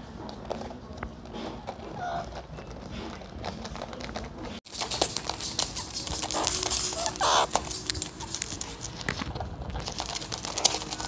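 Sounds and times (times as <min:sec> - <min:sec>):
claws scratching on woven basket: 0:04.7 - 0:11.0.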